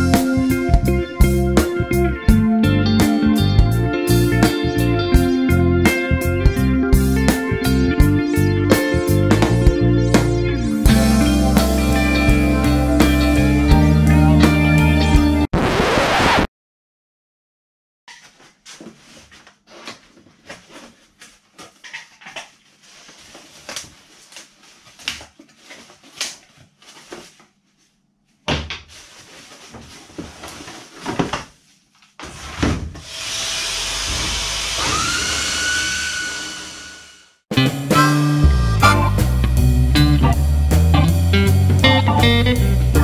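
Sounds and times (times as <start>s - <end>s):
cardboard and plastic packaging rustling: 18.1s - 33.0s
electric sander motor whining: 33.2s - 37.4s.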